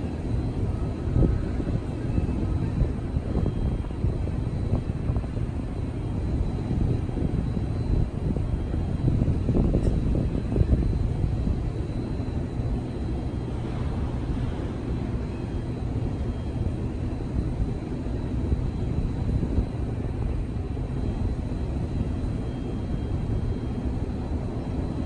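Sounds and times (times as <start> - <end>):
wind rumbling on microphone: 0.0 - 25.0.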